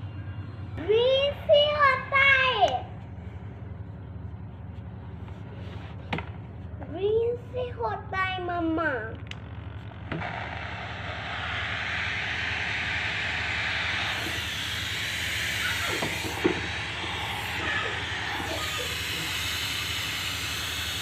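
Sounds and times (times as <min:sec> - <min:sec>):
low steady hum: 0:08.5 - 0:21.0
steam mop hissing: 0:10.5 - 0:21.0.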